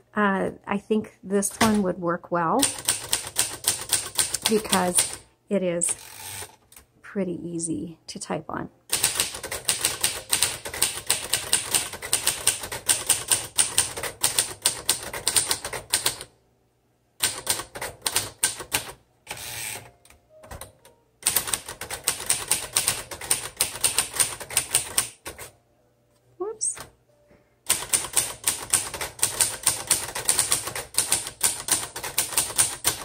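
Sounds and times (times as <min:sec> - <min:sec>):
manual typewriter typing: 0:02.6 - 0:05.2, 0:08.9 - 0:16.3, 0:17.2 - 0:19.8, 0:20.4 - 0:25.5, 0:27.7 - 0:33.0.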